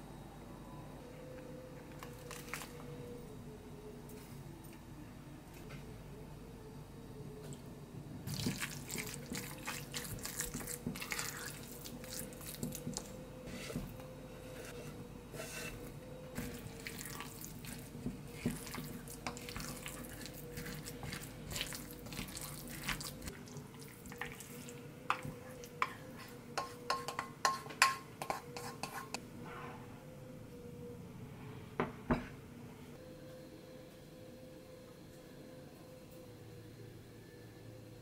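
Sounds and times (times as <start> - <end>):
faint steady hum: 0.0 - 38.0
spatula scraping metal bowl: 13.5 - 15.9, 25.8 - 29.2
whisk stirring in metal bowl: 25.8 - 29.2.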